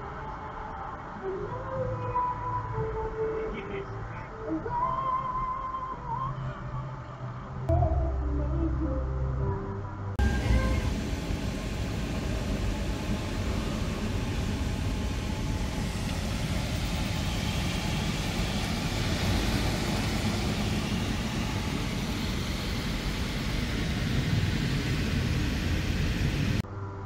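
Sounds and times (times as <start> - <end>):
car wash machine running: 10.2 - 26.6.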